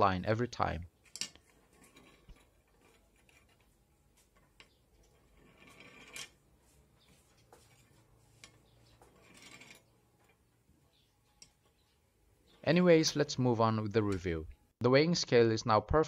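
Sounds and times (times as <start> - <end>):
pen rolling across balance pan: 1.1 - 6.8, 7.4 - 10.6.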